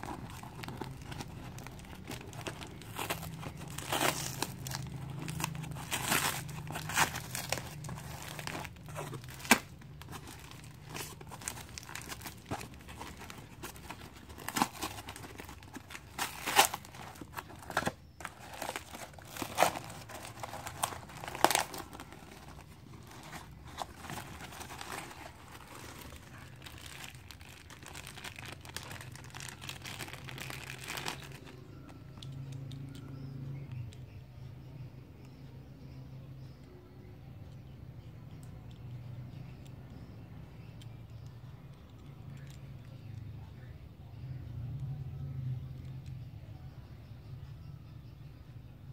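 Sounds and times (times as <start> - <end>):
cardboard and paper tearing: 0.0 - 31.5.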